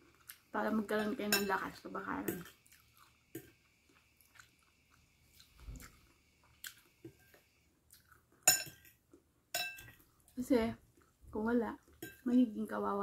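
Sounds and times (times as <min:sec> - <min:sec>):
person chewing food: 0:00.0 - 0:00.5, 0:02.4 - 0:11.2
cutlery clinking on bowl: 0:01.0 - 0:01.6, 0:08.4 - 0:10.0, 0:11.9 - 0:12.3.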